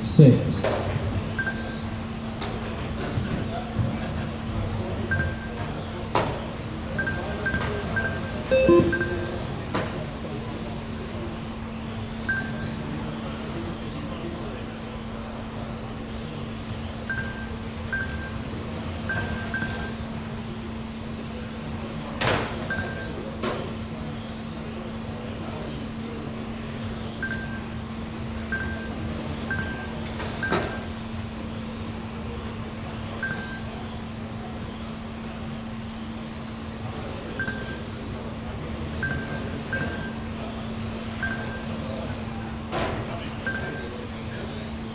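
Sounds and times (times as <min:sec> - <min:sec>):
steady low hum: 0:00.0 - 0:44.9
short high electronic beeps: 0:07.0 - 0:09.6, 0:28.5 - 0:30.9, 0:39.0 - 0:40.2, 0:41.2 - 0:41.7, 0:43.5 - 0:43.9.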